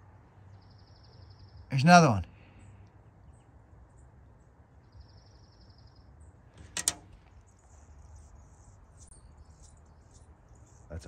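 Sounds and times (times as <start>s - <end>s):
sharp knock: 6.6s - 7.1s.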